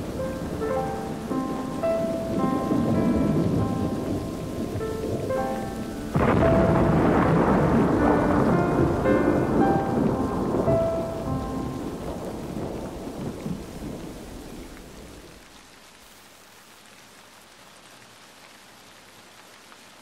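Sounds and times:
thunder rumbling: 0:00.0 - 0:15.5
steady rain: 0:00.0 - 0:20.0.

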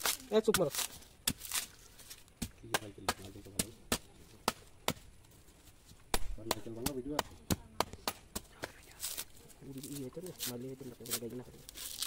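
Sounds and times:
machete chopping coconut husk: 0:00.0 - 0:05.2, 0:05.9 - 0:12.0.

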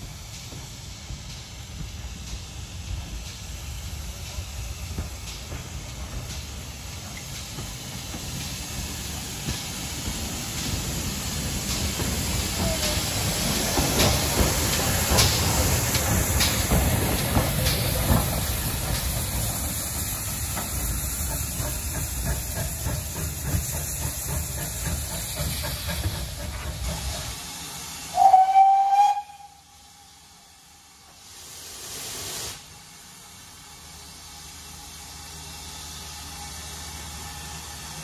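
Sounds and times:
steam hissing: 0:00.0 - 0:38.0
steam locomotive chuffs: 0:00.0 - 0:38.0
locomotive whistle blast: 0:28.1 - 0:29.8.

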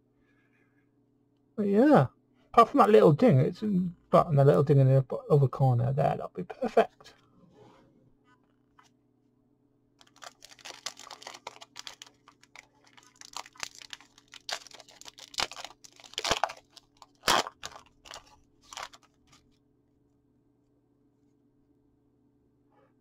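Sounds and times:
foil wrapper crinkling and tearing: 0:10.0 - 0:19.4.

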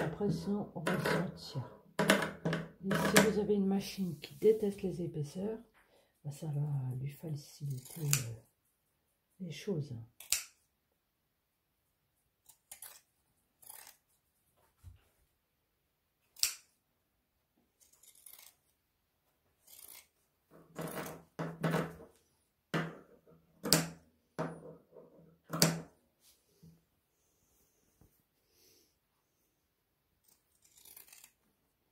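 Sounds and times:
scissors snipping fabric: 0:07.6 - 0:08.6, 0:10.1 - 0:10.6, 0:12.4 - 0:14.1, 0:16.3 - 0:16.8, 0:17.8 - 0:18.6, 0:19.6 - 0:21.3, 0:30.2 - 0:31.5.

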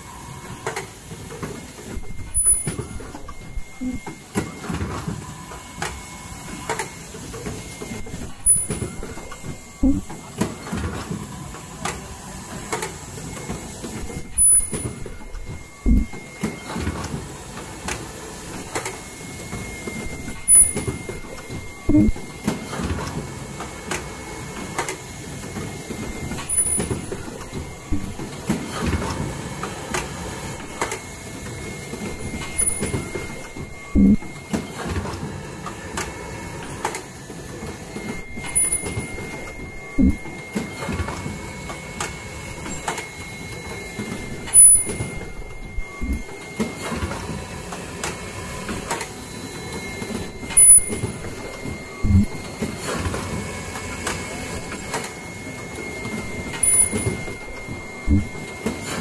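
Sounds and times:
pneumatic actuators clacking: 0:00.0 - 0:47.4, 0:48.0 - 0:49.2, 0:49.8 - 0:53.4, 0:56.1 - 0:59.0
brief high-pitched tones: 0:02.0 - 0:04.3, 0:07.9 - 0:10.3, 0:14.0 - 0:16.3, 0:20.0 - 0:22.4, 0:26.0 - 0:28.3, 0:32.1 - 0:34.4, 0:38.1 - 0:40.4, 0:44.2 - 0:46.4, 0:50.2 - 0:52.6, 0:56.2 - 0:58.5.

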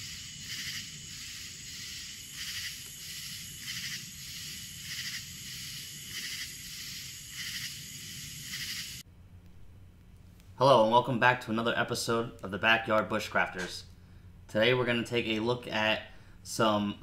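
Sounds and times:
pulsing insect chorus: 0:00.0 - 0:09.0.

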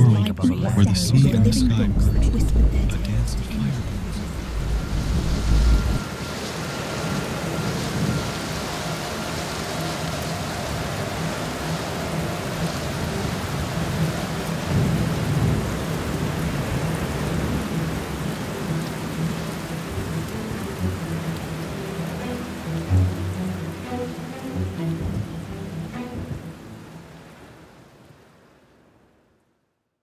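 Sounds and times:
steady rain: 0:00.0 - 0:30.0
low rolling thunder: 0:01.4 - 0:20.4.

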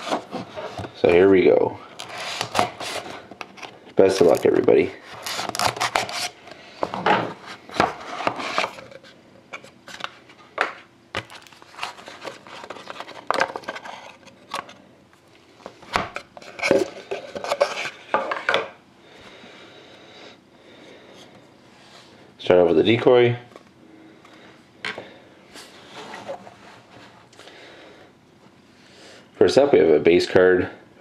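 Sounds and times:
knife slicing box seal: 0:02.0 - 0:03.1, 0:05.1 - 0:06.3.

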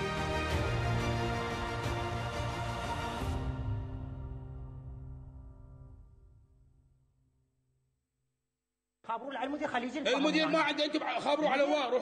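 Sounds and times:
tv theme music: 0:00.0 - 0:06.8.

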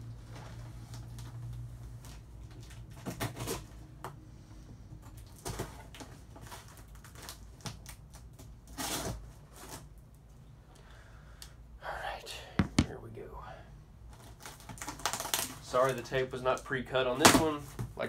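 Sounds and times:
packing tape ripping: 0:06.5 - 0:09.9, 0:14.2 - 0:16.0.

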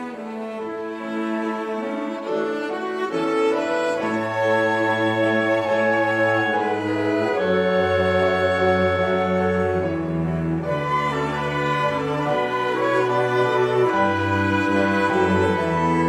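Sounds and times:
chamber ensemble playing slow song: 0:00.0 - 0:16.0
cello bass line: 0:03.3 - 0:16.0.

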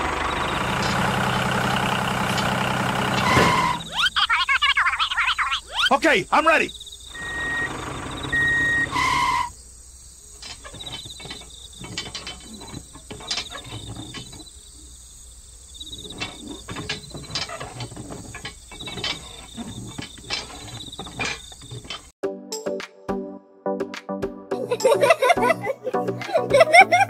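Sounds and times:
crickets chirping: 0:00.0 - 0:22.1
short loud tone: 0:03.2 - 0:04.0, 0:07.2 - 0:09.5
metal wire and plastic clicks: 0:10.4 - 0:14.6, 0:16.0 - 0:22.1.

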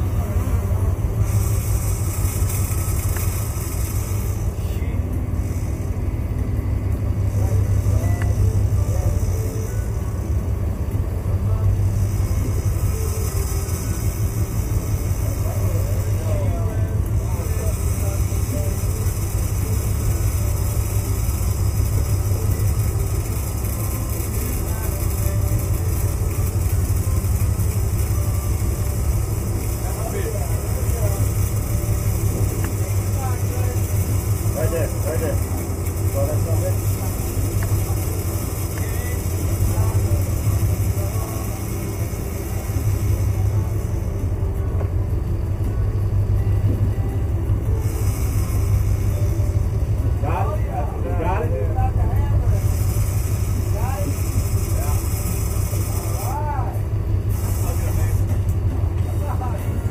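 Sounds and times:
boat engines rumbling: 0:00.0 - 0:59.9
hiss: 0:00.1 - 0:06.3, 0:11.5 - 0:44.3, 0:47.7 - 0:49.8, 0:52.4 - 0:58.4.

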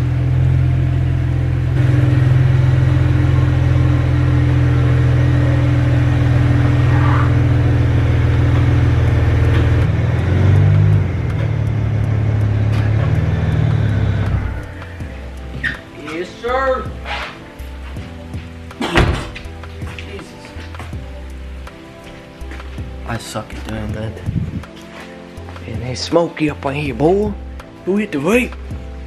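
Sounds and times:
car engine rumbling: 0:00.0 - 0:17.8.

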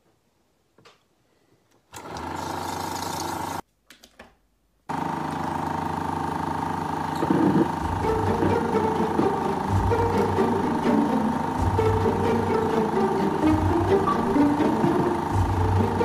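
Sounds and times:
film projector motor humming: 0:01.9 - 0:03.6, 0:04.9 - 0:16.0.

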